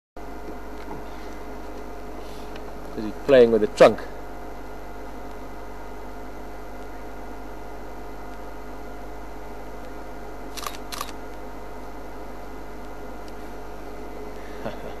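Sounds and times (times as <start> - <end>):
electrical hum and hiss: 0.2 - 15.0
sharp clicks: 10.6 - 11.2.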